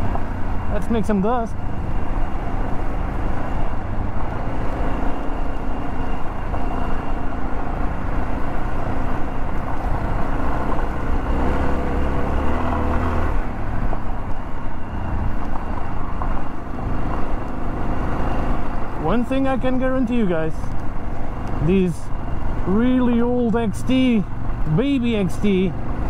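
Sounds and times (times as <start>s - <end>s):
motorcycle engine revving: 7.7s - 13.8s.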